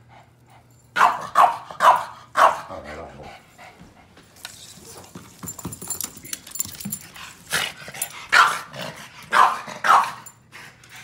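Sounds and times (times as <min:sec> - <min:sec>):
dog barking: 0:01.0 - 0:02.8, 0:08.3 - 0:08.7, 0:09.3 - 0:10.2.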